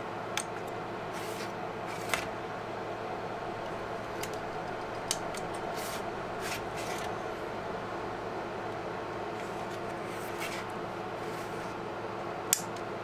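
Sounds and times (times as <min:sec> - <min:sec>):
server fan hum: 0:00.0 - 0:13.0
scraping rustles: 0:09.4 - 0:11.8.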